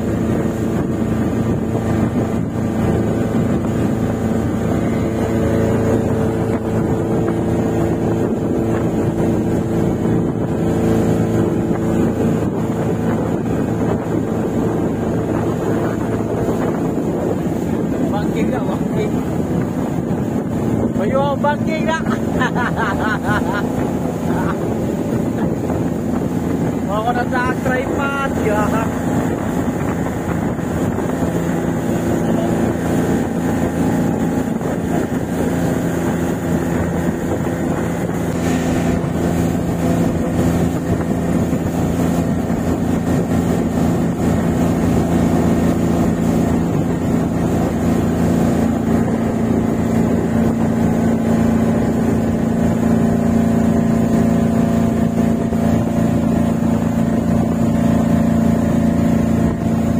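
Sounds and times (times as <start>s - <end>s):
motorboat engine droning: 0.0s - 59.9s.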